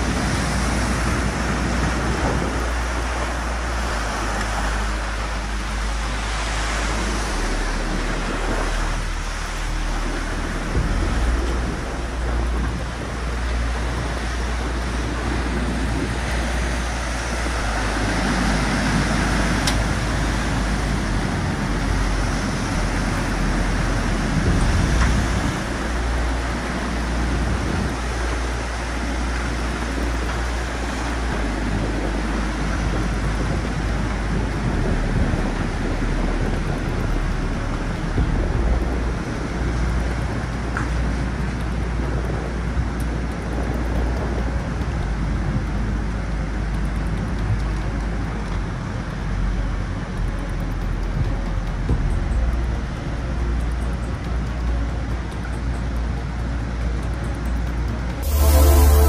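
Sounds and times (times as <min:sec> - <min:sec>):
deep rumble: 0:00.0 - 0:59.0
floodwater rushing: 0:00.0 - 0:59.0.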